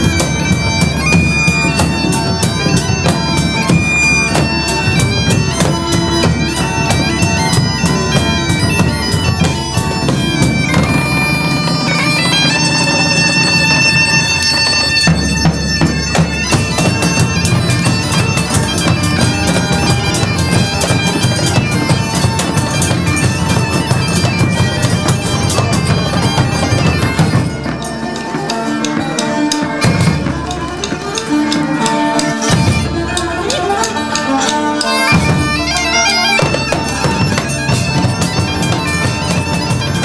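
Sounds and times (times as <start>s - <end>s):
bagpipes playing dance tune: 0.0s - 40.0s
drums beating: 0.0s - 40.0s.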